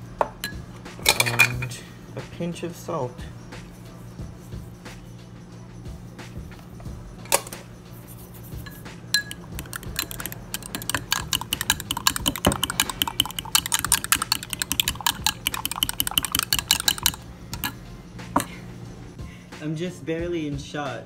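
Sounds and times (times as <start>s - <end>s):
fork beating eggs in glass: 8.6s - 17.8s.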